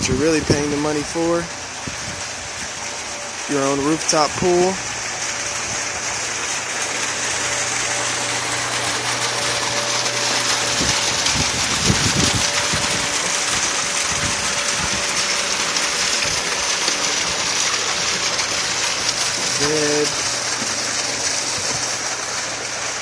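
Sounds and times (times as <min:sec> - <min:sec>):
water pouring into a pool: 0:00.0 - 0:23.0.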